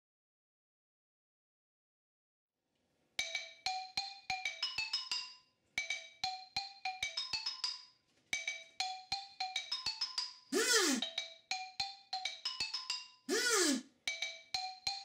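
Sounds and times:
xylophone tune: 3.2s - 15.0s.

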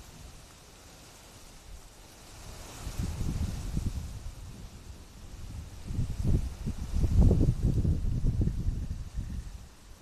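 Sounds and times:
wind buffeting microphone: 0.0s - 10.0s
wind rustling tree leaves: 0.0s - 10.0s.

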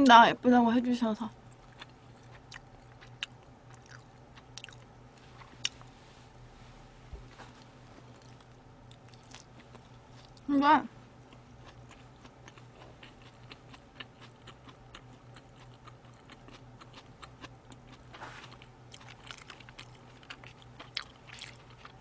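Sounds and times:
low steady hum: 0.0s - 22.0s
chewing close to microphone: 11.3s - 22.0s.

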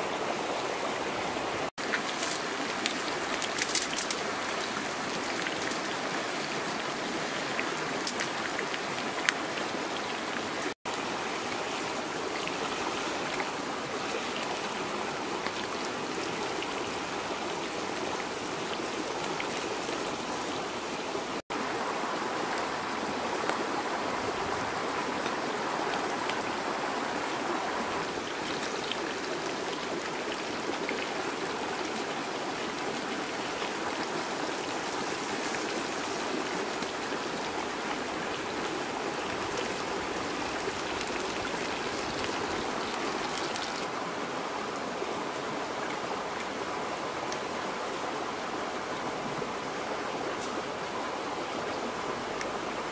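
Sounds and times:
river rushing: 0.0s - 52.9s
sharp crackles: 1.9s - 4.2s.

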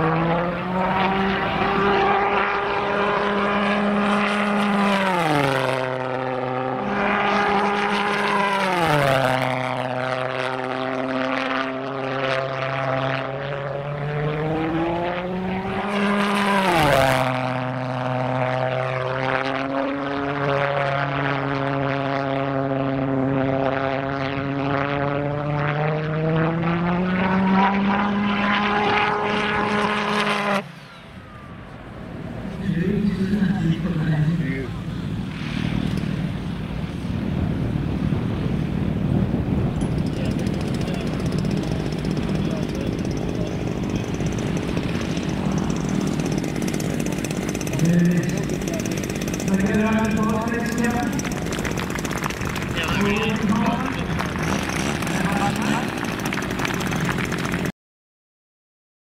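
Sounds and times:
pulse jet engine drone: 0.0s - 57.7s.

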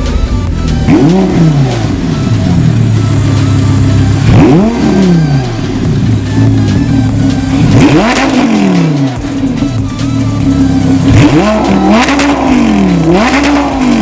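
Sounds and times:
sports car engine revving: 0.0s - 14.0s.

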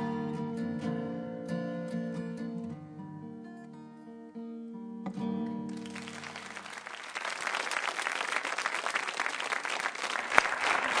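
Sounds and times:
acoustic guitar chord ringing: 0.0s - 6.0s
audience applause: 5.7s - 11.0s.

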